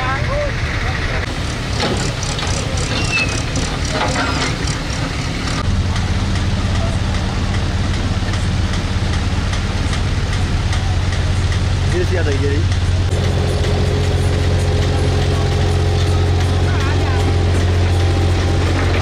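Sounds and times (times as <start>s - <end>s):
diesel engine humming: 0.0s - 19.0s
voices: 0.0s - 19.0s.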